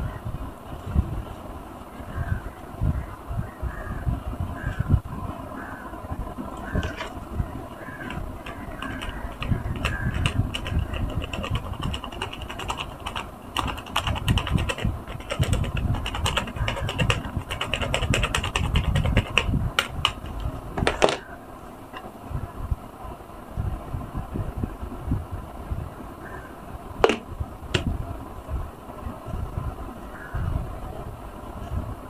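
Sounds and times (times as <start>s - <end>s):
suds popping and crackling: 6.4s - 21.3s, 27.0s - 28.0s.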